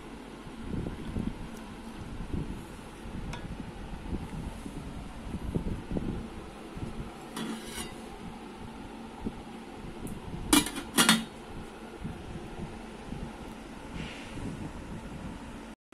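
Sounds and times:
metal pot lid clanking: 0:07.3 - 0:08.1, 0:10.6 - 0:11.3.

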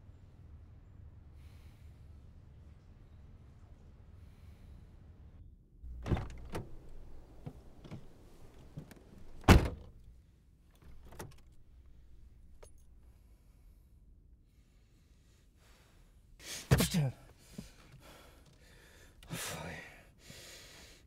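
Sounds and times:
car door and seat clicks: 0:05.9 - 0:10.0, 0:10.8 - 0:12.8
car door shutting: 0:05.9 - 0:10.0, 0:10.8 - 0:11.6.

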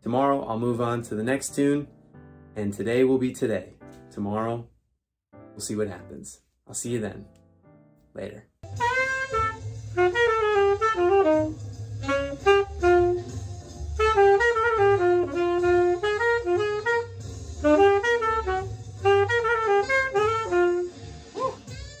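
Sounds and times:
tenor saxophone playing bebop: 0:08.7 - 0:21.0.

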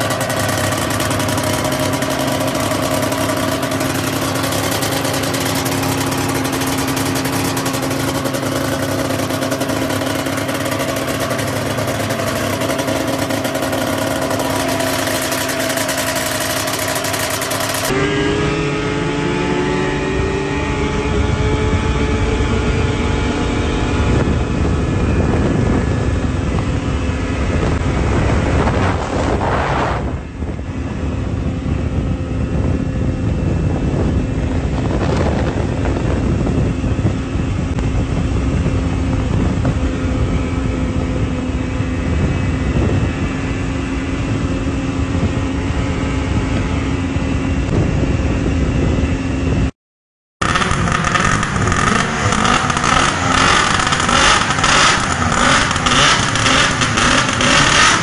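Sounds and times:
snowmobile engine running hard: 0:00.0 - 0:49.7, 0:50.4 - 0:58.0
wind noise on microphone: 0:00.0 - 0:49.7, 0:50.4 - 0:58.0.

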